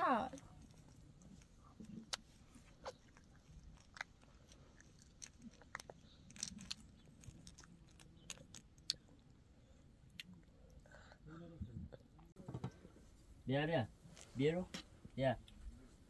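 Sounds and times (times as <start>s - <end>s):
child chewing crunchy snack: 0.3s - 12.3s.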